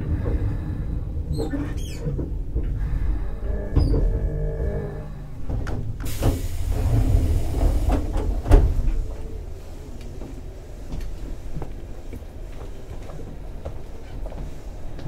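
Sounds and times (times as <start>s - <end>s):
low train rumble: 0.0s - 15.0s
train doors shutting thud: 5.4s - 9.2s
door air hiss: 6.0s - 9.0s.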